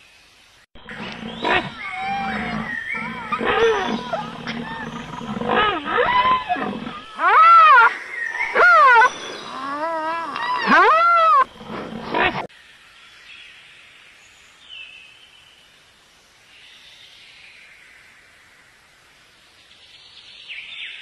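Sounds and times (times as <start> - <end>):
roar-like animal calls: 0.8 - 12.5.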